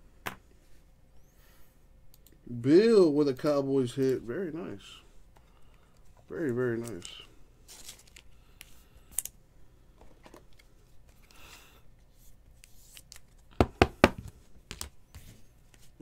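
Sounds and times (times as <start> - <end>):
cardboard packaging rustling: 6.7 - 8.3.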